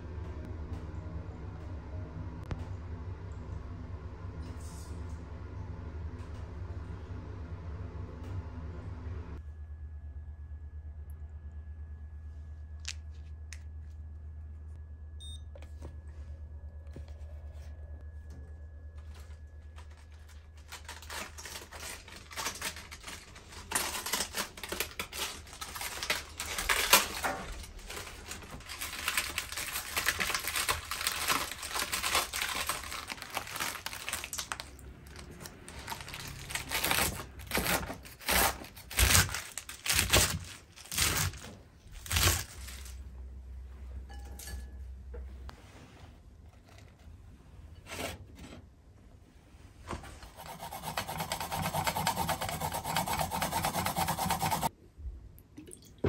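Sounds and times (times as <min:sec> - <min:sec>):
low room hum: 0:00.0 - 0:56.0
cabbage leaves tearing and rustling: 0:19.8 - 0:43.0.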